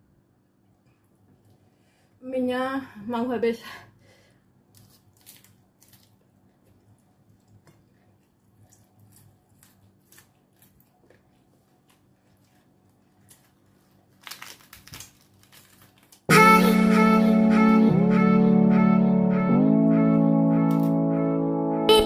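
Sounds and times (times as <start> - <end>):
lettuce leaves being torn: 4.7 - 6.8, 7.4 - 16.3
chewing crisp lettuce: 4.7 - 16.3.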